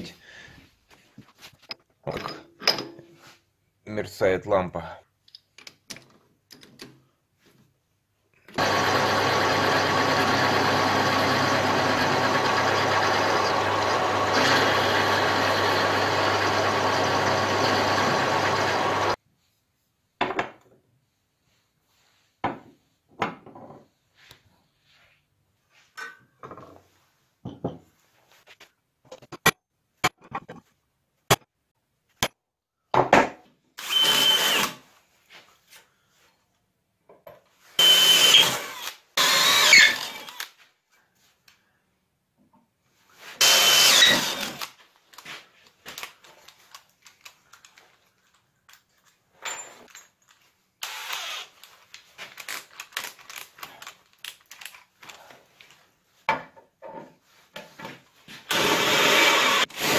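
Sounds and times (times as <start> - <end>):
power tool whining: 8.6 - 19.2, 33.8 - 34.8, 37.8 - 40.5, 43.4 - 44.7, 50.8 - 51.6, 58.5 - 59.9.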